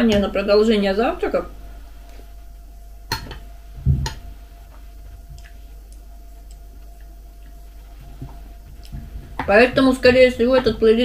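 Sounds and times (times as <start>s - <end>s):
dull thump: 3.8s - 4.2s.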